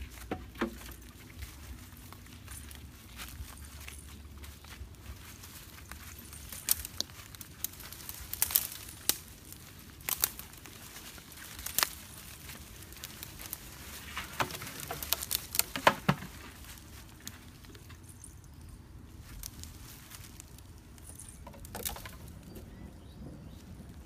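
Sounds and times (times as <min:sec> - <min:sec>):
plastic items being handled: 0:00.0 - 0:18.3
dry leaves crackling underfoot: 0:00.0 - 0:24.0.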